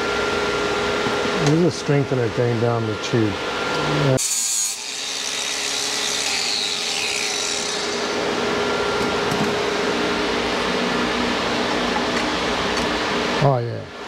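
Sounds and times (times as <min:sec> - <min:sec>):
power grinder grinding metal: 0:03.7 - 0:09.2.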